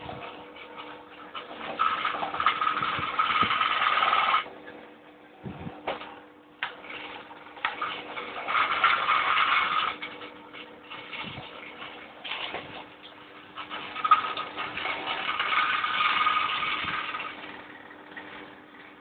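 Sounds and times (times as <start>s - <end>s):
small electric motors whining: 1.6s - 4.5s, 7.7s - 10.1s, 13.7s - 18.2s.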